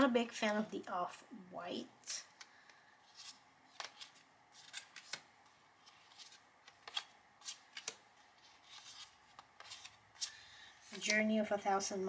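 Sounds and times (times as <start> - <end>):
paper cards shuffling: 2.4 - 11.4.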